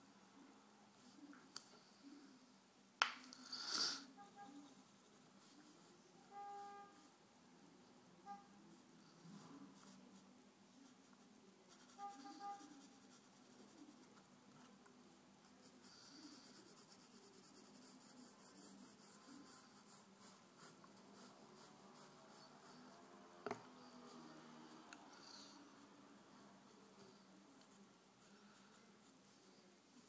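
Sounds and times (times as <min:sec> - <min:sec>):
pencil scratching on paper: 0:09.2 - 0:14.3, 0:15.4 - 0:29.7.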